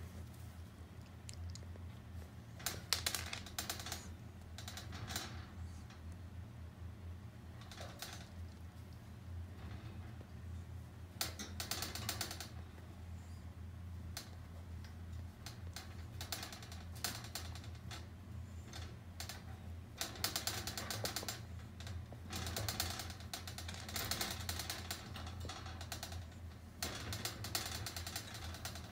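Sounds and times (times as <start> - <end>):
wire playpen rattling and clicking: 2.2 - 6.1, 7.5 - 8.9, 11.1 - 12.9, 14.0 - 28.9.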